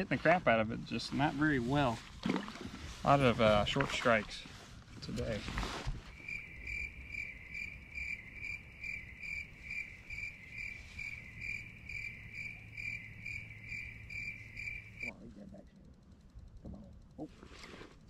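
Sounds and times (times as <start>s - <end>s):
faint low hum: 0.0s - 18.0s
crickets chirping: 5.2s - 17.3s.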